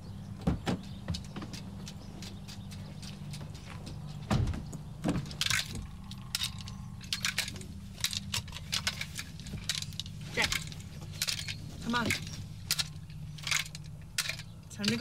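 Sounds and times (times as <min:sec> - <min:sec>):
steady low hum: 0:00.0 - 0:15.0
seat belt clicks and rustles: 0:00.4 - 0:15.0
car door opening thump: 0:04.3 - 0:05.2.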